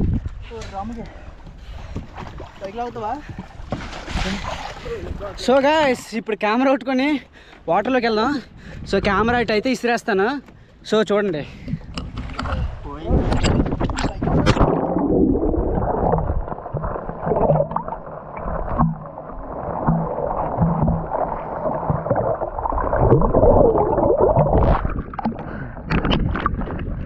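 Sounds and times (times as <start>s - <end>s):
water splashes: 0.8s - 5.9s, 11.5s - 27.0s
muffled underwater gurgling: 13.1s - 27.0s.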